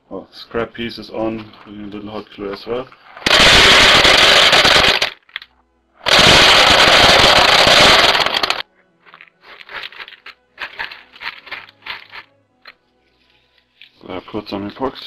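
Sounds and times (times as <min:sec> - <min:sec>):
kibble rattling into wooden bowl: 0:07.3 - 0:12.3.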